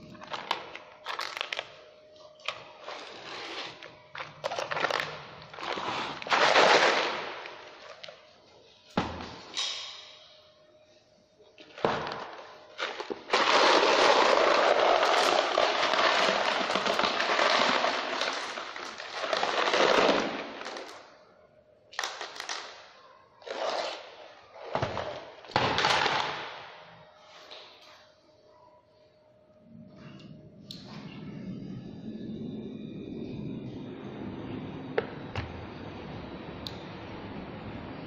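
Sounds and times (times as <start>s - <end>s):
bait pellets rattling in plastic crate: 12.8s - 21.0s.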